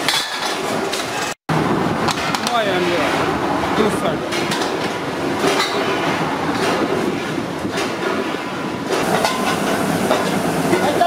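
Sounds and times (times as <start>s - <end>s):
workshop machinery din: 0.0s - 11.0s
sharp metallic knocks: 4.0s - 11.0s.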